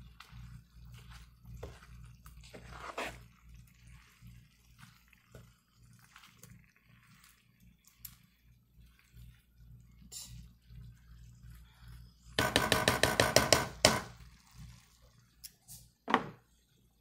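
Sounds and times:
spatula scraping a pan: 0.0 - 4.2
food sizzling in a pan: 0.0 - 12.8, 13.7 - 17.0.

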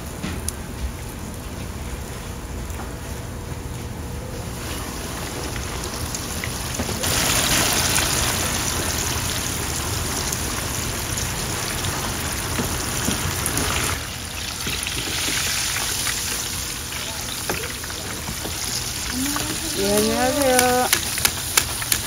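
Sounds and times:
fish deep-frying in oil: 4.4 - 22.0.

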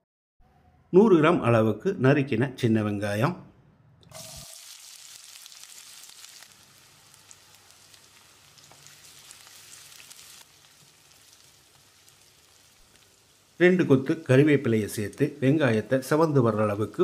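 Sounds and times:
onions sizzling in hot oil: 4.1 - 17.0.

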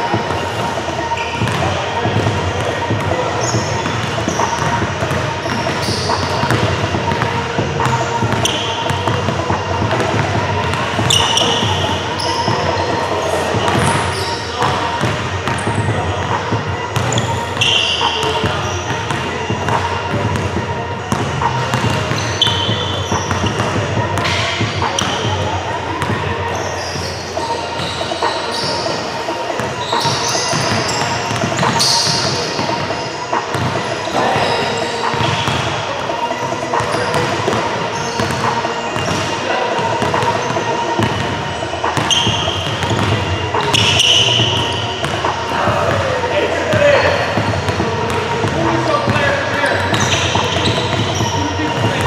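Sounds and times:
crowd chatter: 0.0 - 52.0
people talking: 0.0 - 52.0
sneakers squeaking: 0.0 - 52.0
basketball bouncing on gym floor: 1.4 - 25.4, 36.8 - 46.0, 46.7 - 52.0.

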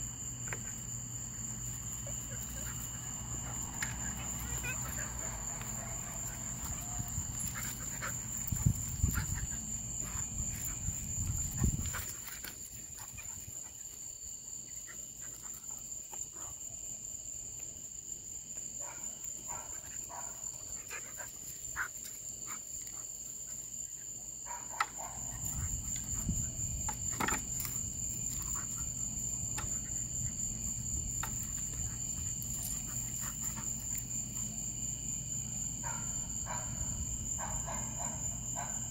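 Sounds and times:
night insects droning: 0.0 - 38.9
animals scuffling: 1.8 - 13.7.

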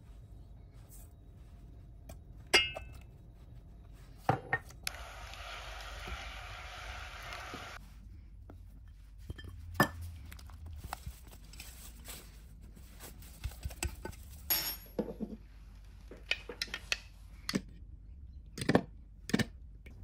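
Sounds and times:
bowl clinking on saucepan: 2.5 - 3.0
water and butter sizzling: 4.8 - 7.8.

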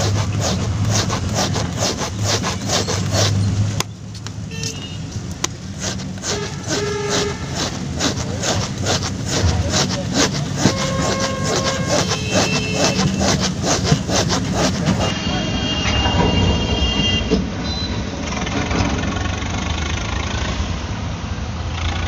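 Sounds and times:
file rasping on rubber: 0.0 - 15.2.

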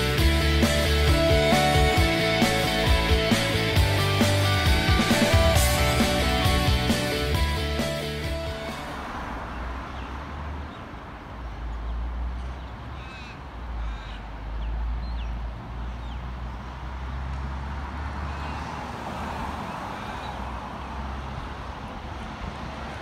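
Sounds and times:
distant traffic: 0.0 - 23.0
wind: 0.0 - 23.0
bird calls: 12.5 - 16.2.

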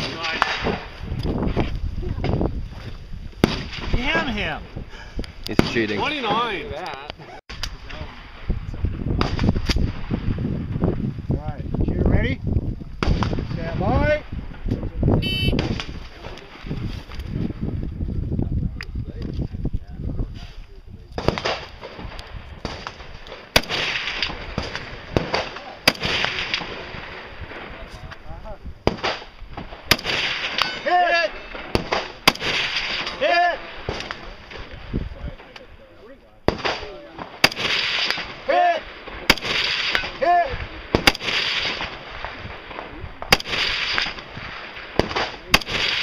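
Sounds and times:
rifle shots with echo: 21.2 - 27.8, 28.8 - 35.6, 36.5 - 46.0.

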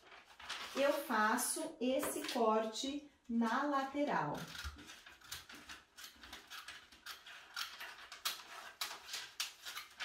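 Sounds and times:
scissors snipping paper: 4.2 - 10.0.

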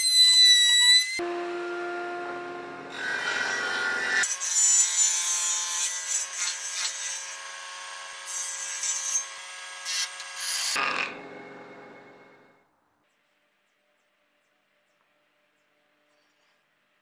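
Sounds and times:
saw cutting wood: 0.0 - 11.5
table saw motor humming: 1.2 - 4.2.

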